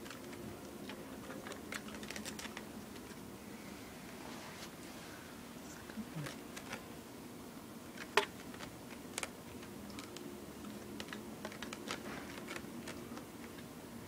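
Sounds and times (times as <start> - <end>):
kitten playing clicks and taps: 0.0 - 3.2, 6.2 - 6.8, 7.9 - 13.8.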